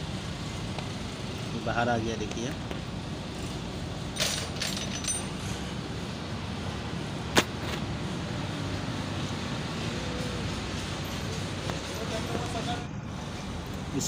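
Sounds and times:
metal clinks: 4.2 - 5.6.

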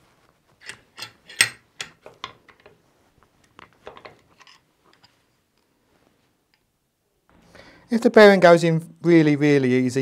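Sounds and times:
metal clicks and clinks: 0.6 - 2.7.

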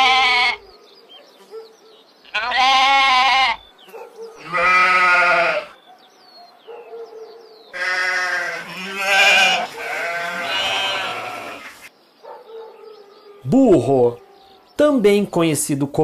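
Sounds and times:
sheep bleating: 0.0 - 0.7, 2.3 - 3.7, 4.4 - 5.8, 7.8 - 11.9.

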